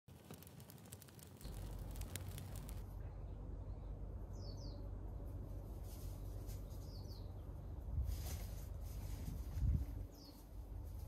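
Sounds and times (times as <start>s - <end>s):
leaves rustling in breeze: 0.1s - 2.9s, 5.2s - 7.2s, 7.8s - 11.0s
wind rumble on microphone: 7.6s - 11.0s.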